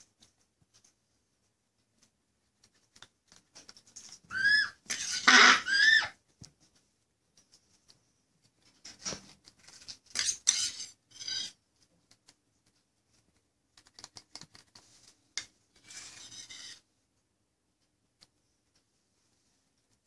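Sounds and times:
metal spoon scraping against beak: 4.9 - 5.5, 10.1 - 11.6.

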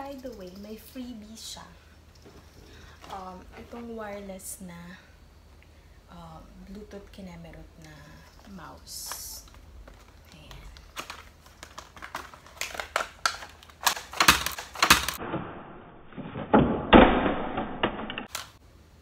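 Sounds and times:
plastic packaging crinkling: 8.2 - 15.2.

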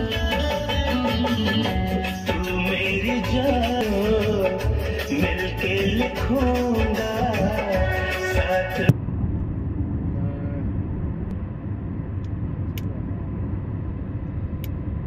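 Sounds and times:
background song: 0.0 - 9.0
vehicle rumbling along road: 8.8 - 15.0.

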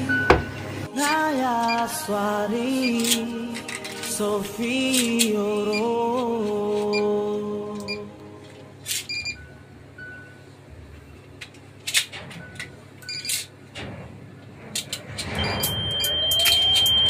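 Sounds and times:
short faint beeps: 15.4 - 17.0.

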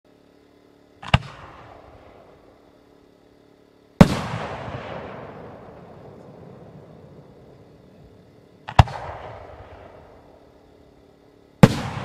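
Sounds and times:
rolling echo: 4.0 - 10.6, 11.6 - 12.0.

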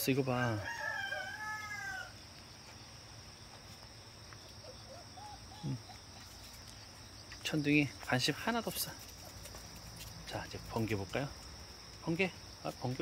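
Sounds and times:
insects chirring: 0.0 - 13.0
rooster crowing: 0.2 - 2.2.

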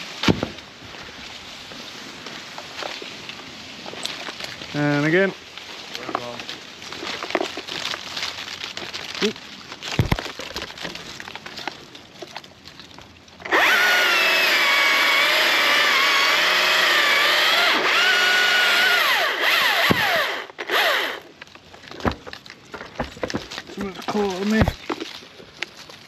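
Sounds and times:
rustling: 0.0 - 13.8, 19.0 - 26.0
chainsaw cutting branches: 13.4 - 21.4.

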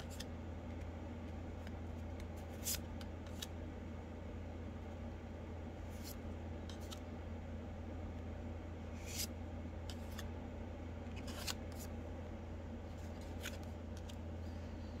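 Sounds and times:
cards flipped through by hand: 0.0 - 3.6, 5.9 - 7.1, 8.9 - 10.3, 11.1 - 12.0, 12.9 - 14.2
steady low hum: 0.0 - 15.0.

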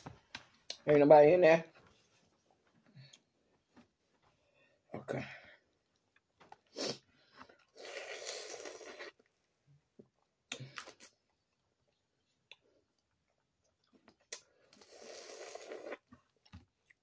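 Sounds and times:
long slurp: 7.6 - 9.2, 14.3 - 16.1.

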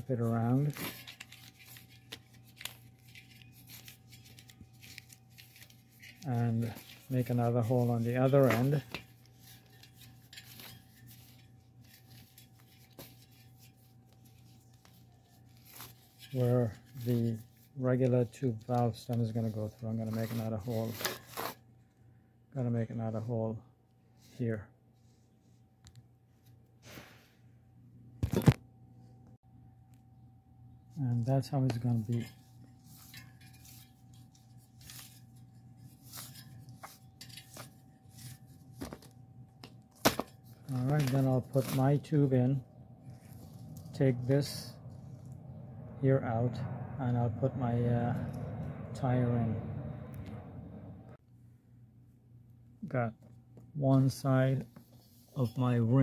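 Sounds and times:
hands handling rubber on wheel rim: 0.0 - 21.6, 31.1 - 45.4
low steady hum: 0.0 - 26.8, 27.6 - 56.0
steady low hum: 28.8 - 54.6.

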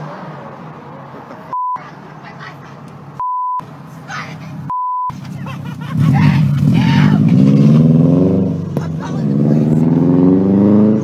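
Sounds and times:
censor bleeps: 1.5 - 1.8, 3.2 - 3.6, 4.7 - 5.2.

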